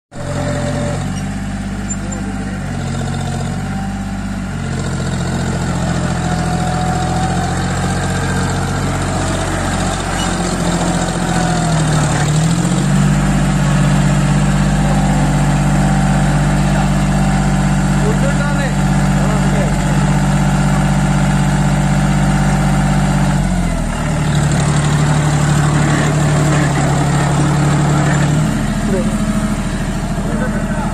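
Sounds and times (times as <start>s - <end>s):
tractor diesel engine under load: 0.1s - 30.9s.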